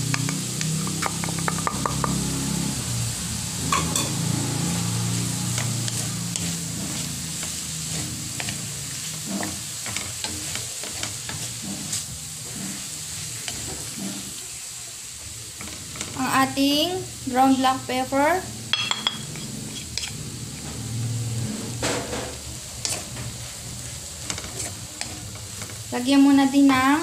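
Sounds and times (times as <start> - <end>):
fish sizzling: 0.0 - 27.0
spatula scraping a pan: 3.7 - 14.4, 15.4 - 16.5, 18.9 - 26.9.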